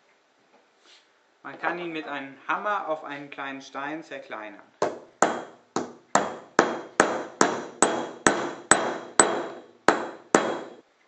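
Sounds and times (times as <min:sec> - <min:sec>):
hammer striking marble: 0:04.8 - 0:10.8.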